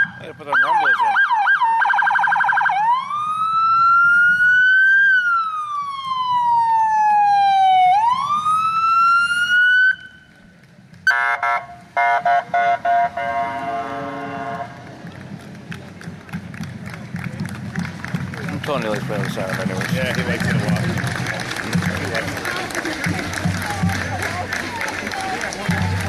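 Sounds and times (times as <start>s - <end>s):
police siren wailing: 0.0s - 10.3s
short horn blasts: 11.1s - 14.8s.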